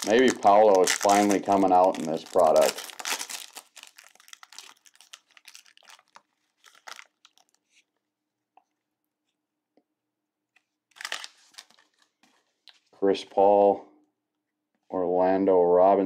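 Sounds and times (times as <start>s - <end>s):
foil wrapper crinkling: 0.0s - 7.9s, 10.9s - 12.4s.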